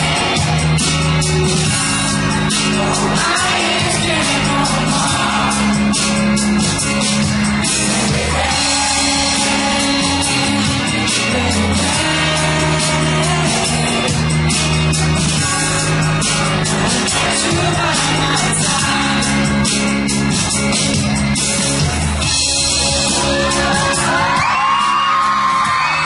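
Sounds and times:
pop backing track with beat: 0:00.0 - 0:26.0
man singing into microphone: 0:01.6 - 0:06.1, 0:08.0 - 0:14.3, 0:15.2 - 0:19.8.

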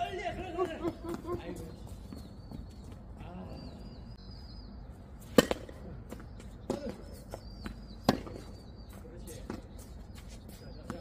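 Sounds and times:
footsteps scuffing on court: 0:00.0 - 0:03.2, 0:06.0 - 0:11.0
tennis ball hit by racquet: 0:05.2 - 0:07.0, 0:08.0 - 0:08.6.

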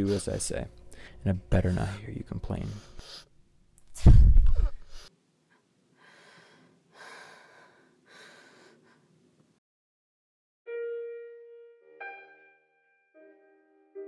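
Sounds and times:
woman breathing heavily: 0:02.6 - 0:09.4
woman gasping: 0:06.0 - 0:09.2.

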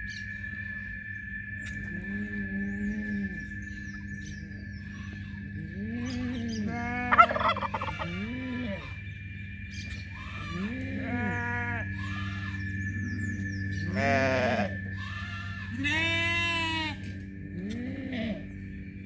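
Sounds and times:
steady high-pitched tone: 0:00.0 - 0:19.0
poultry calling: 0:01.9 - 0:09.1, 0:09.7 - 0:18.6
goats bleating: 0:05.8 - 0:09.0, 0:10.2 - 0:12.6, 0:13.9 - 0:18.4.

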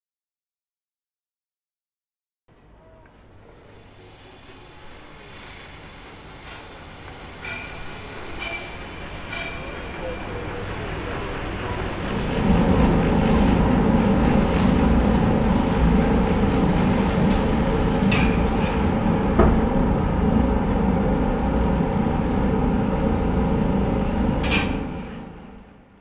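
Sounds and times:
thin high whine: 0:02.8 - 0:26.0
loud steady rumbling: 0:09.3 - 0:25.9.

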